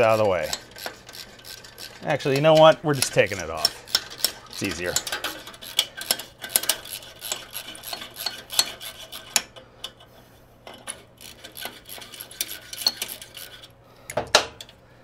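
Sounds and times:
metal scrapes: 11.2 - 13.7.

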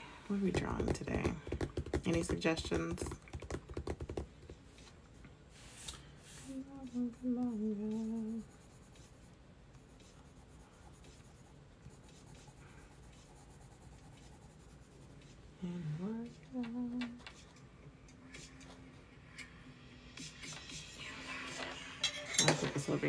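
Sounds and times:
pencil scratching on paper: 6.3 - 15.4
woman humming: 6.5 - 8.5, 15.6 - 17.2.

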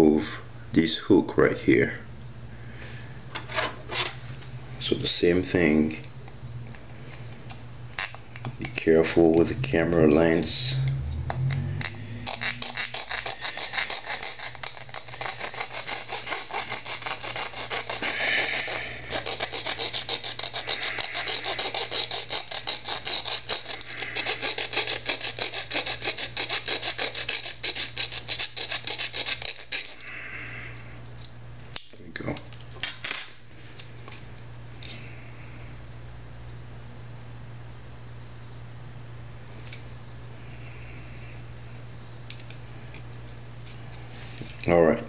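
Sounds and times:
small saw cutting plastic: 11.8 - 30.0.

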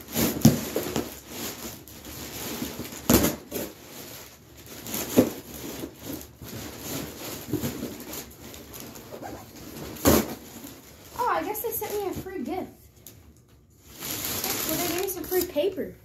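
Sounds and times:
packing material rustling: 0.0 - 16.0.

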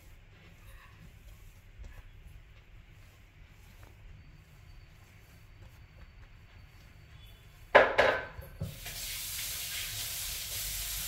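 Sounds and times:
water running from tap: 8.6 - 11.0.

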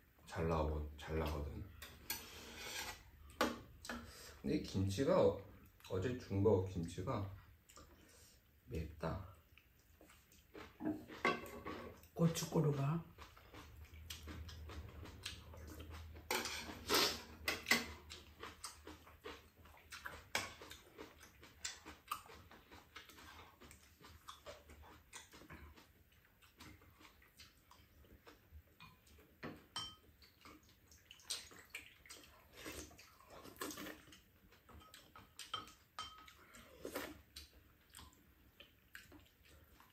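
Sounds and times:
utensils clicking on pan and bowls: 16.2 - 18.2, 28.8 - 30.0, 34.8 - 36.3.

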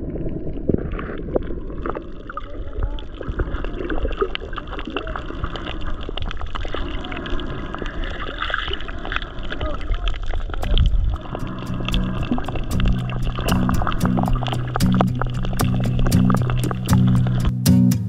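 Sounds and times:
bubbling: 0.0 - 17.5
muffled underwater rumble: 0.0 - 17.5
small clicks and crackles: 0.7 - 17.5.

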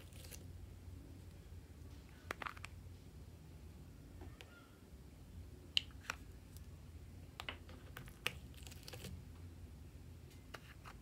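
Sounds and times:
plastic pots clicking and tapping: 7.4 - 8.4.

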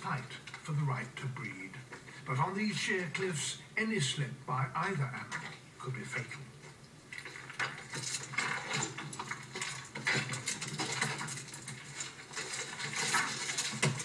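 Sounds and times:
clattering and knocking: 7.1 - 14.0.

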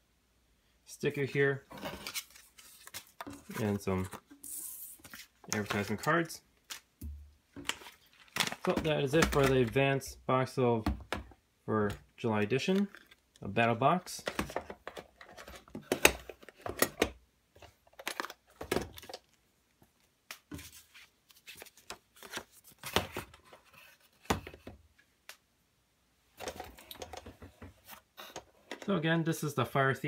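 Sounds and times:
packaging rustling: 1.7 - 6.8, 7.6 - 9.8.

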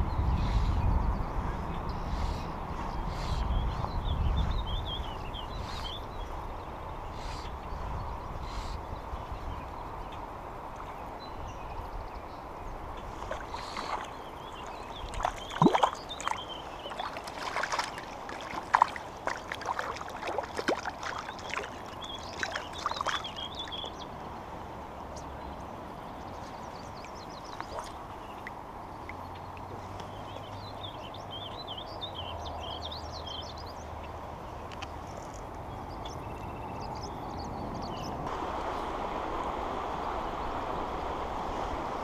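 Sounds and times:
river rushing: 12.4 - 30.2, 38.2 - 42.0
fish splashing at surface: 13.3 - 23.4.

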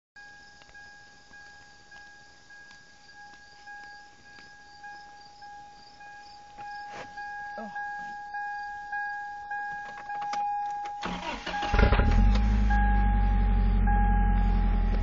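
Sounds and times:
crickets chirping: 0.2 - 14.9
light ticks: 0.5 - 4.6
steady high tone: 3.2 - 15.0.

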